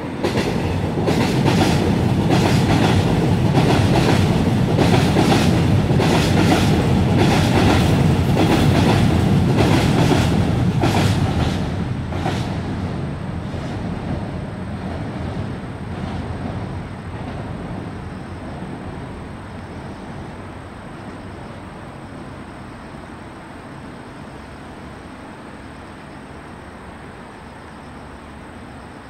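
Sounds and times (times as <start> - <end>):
train wheel clack: 0.0 - 12.9
train rumble: 0.0 - 29.0.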